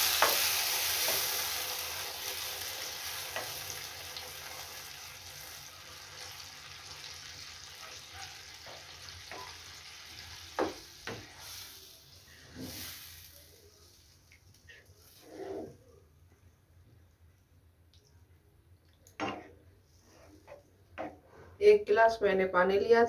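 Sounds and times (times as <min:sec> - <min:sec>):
gravy sizzling in a frying pan: 0:00.0 - 0:15.3
spatula knocking on pan: 0:10.5 - 0:11.2.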